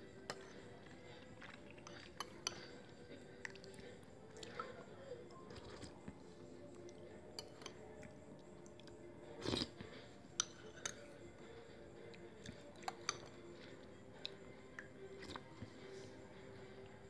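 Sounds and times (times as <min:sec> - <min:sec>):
spoon clinking against bowl: 0:07.4 - 0:07.8.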